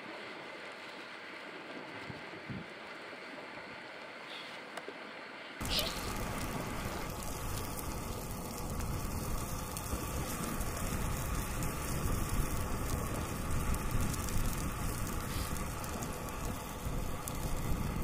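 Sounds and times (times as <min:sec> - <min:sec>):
wind rumbling on microphone: 0:01.9 - 0:02.7, 0:05.6 - 0:18.0
food sizzling in a frying pan: 0:05.6 - 0:18.0.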